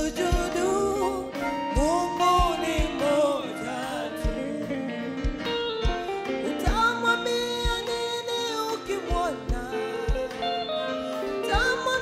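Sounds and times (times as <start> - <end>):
person singing worship song: 0.0 - 5.1
live band chords: 0.0 - 12.0
low drum beats: 1.7 - 3.2, 4.2 - 8.0.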